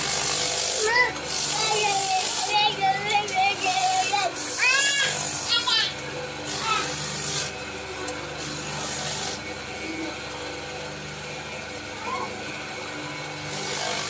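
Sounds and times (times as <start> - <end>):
spindle sander humming: 0.0 - 14.0
rasping hiss of sanding: 3.4 - 5.8, 6.5 - 7.5, 8.4 - 9.4.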